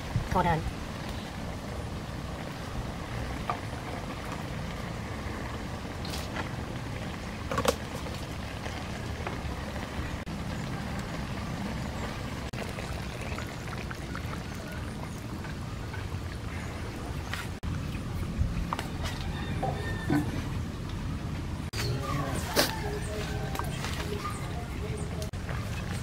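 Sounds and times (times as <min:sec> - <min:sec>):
wok steaming and simmering: 0:00.0 - 0:17.8.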